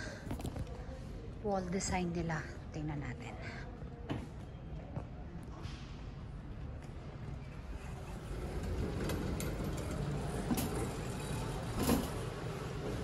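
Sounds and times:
shopping cart rolling on concrete: 0:07.8 - 0:13.0
cart rattling: 0:08.0 - 0:13.0.

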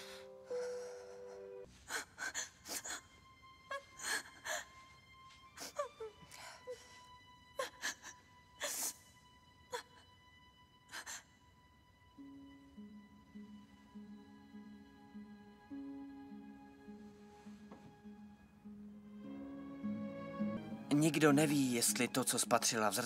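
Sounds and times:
woman gasping and whimpering: 0:00.0 - 0:04.8, 0:05.6 - 0:09.0, 0:09.7 - 0:10.1
held music chord: 0:18.6 - 0:23.0.

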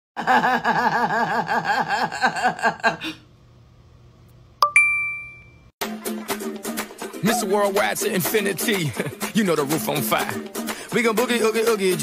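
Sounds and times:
woman laughing: 0:00.2 - 0:03.2
bell-like ding: 0:04.6 - 0:05.7.

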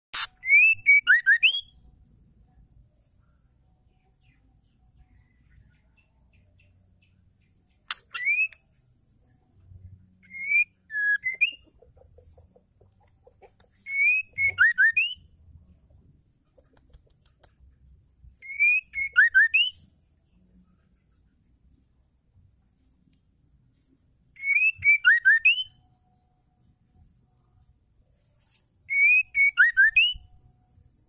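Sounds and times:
bird whistling song: 0:00.2 - 0:01.9, 0:07.9 - 0:08.8, 0:10.1 - 0:11.8, 0:13.7 - 0:15.3, 0:18.4 - 0:20.0, 0:24.3 - 0:25.8, 0:28.8 - 0:30.4.

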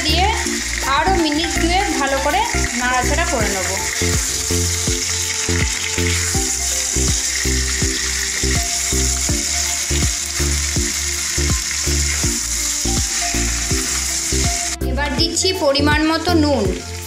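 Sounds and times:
food sizzling in hot oil: 0:00.0 - 0:17.0
background music with beat: 0:02.6 - 0:17.0.

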